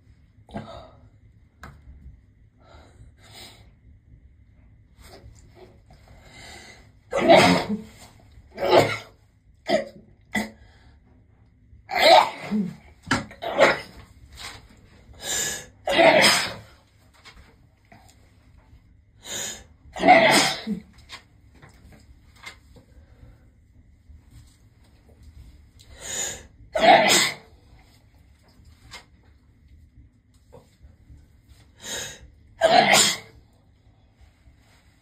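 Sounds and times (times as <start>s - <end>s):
woman breathing: 6.0s - 7.0s
woman sneezing: 7.1s - 8.0s, 11.9s - 12.8s, 15.4s - 16.7s, 20.0s - 20.9s, 26.8s - 27.5s, 32.6s - 33.4s.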